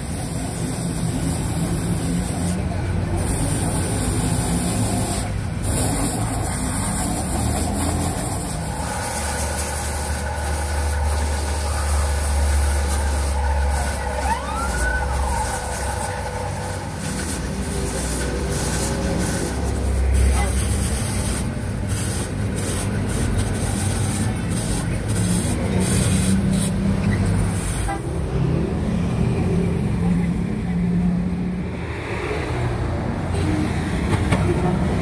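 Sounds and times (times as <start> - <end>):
grinder scraping rubber: 0.0 - 27.9
deep engine rumble: 0.0 - 31.8.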